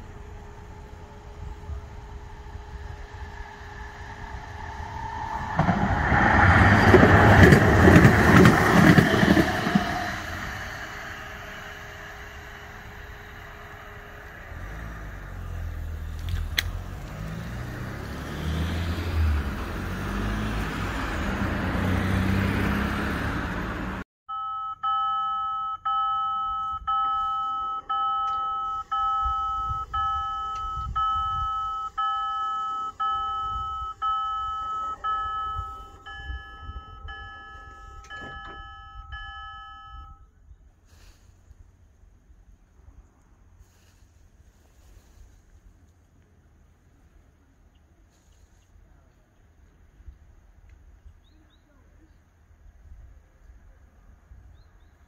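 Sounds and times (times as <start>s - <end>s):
light-rail train rumbling past: 0.0s - 24.0s
level-crossing warning bell: 24.3s - 40.3s.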